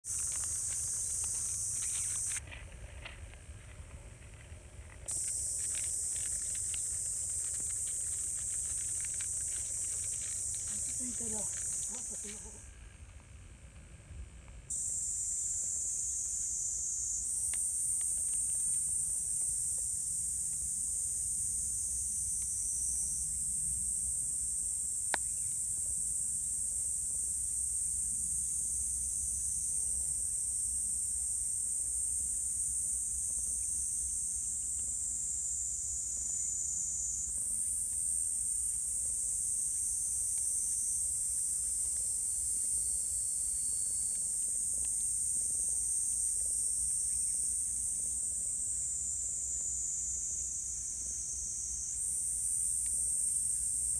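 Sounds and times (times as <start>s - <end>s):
cicadas shrilling: 0.0s - 3.2s, 4.8s - 12.8s, 14.7s - 53.9s.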